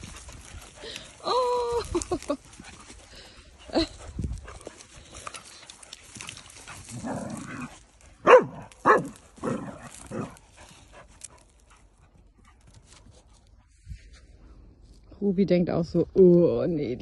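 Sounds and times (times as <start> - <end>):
dogs playing roughly: 0.0 - 13.6
dog barking: 8.2 - 9.2.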